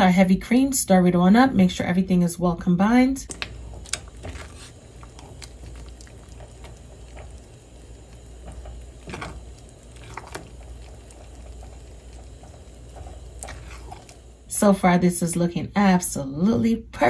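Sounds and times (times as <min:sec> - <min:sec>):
steady low hum: 0:00.0 - 0:17.0
spatula stirring thick grits: 0:03.4 - 0:14.5.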